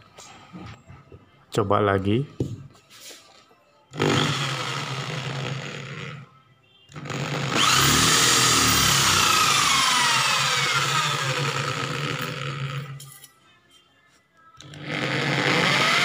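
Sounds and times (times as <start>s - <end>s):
electric drill whining: 3.9s - 6.2s, 6.9s - 13.0s, 14.6s - 16.0s
drill bit spinning on steel: 4.0s - 6.2s, 7.0s - 13.0s, 14.6s - 16.0s.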